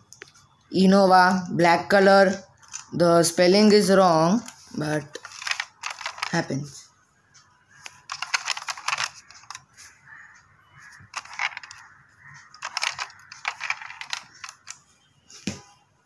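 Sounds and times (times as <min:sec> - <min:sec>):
toy cars clicking and clattering: 0:01.9 - 0:06.8, 0:07.8 - 0:09.7, 0:10.8 - 0:14.8.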